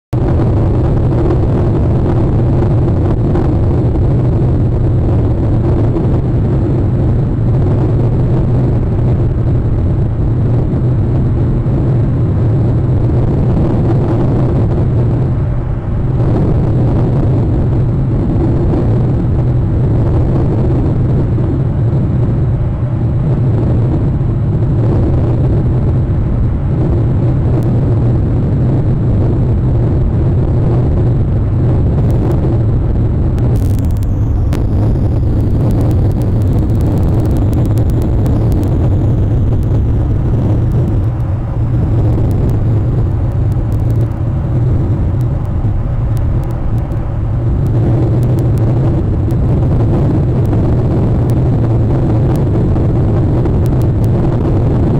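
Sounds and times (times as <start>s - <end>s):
loud steady low rumble: 0.0s - 54.9s.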